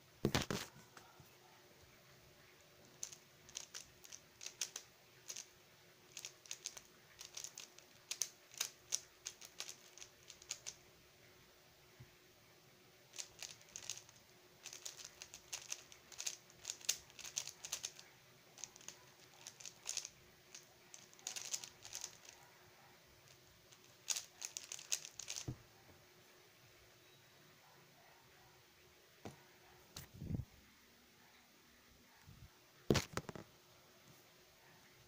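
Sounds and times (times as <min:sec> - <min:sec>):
plastic cube clicking: 0:02.9 - 0:05.5, 0:06.1 - 0:10.8, 0:13.1 - 0:22.4, 0:23.7 - 0:25.6.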